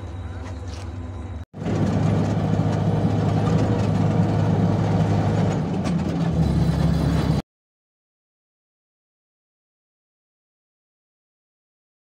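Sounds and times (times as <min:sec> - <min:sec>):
road noise: 0:00.0 - 0:07.4
vehicle engine running: 0:00.0 - 0:07.4.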